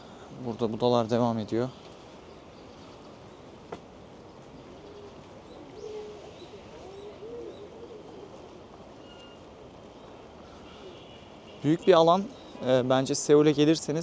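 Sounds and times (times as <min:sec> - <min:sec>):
pigeon cooing: 0:04.8 - 0:09.4.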